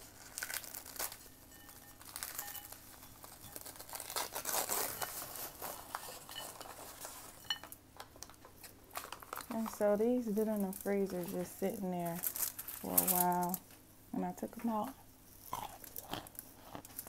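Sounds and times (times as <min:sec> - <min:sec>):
frozen block crunching: 0:00.0 - 0:07.4
cardboard box tearing: 0:03.6 - 0:06.0.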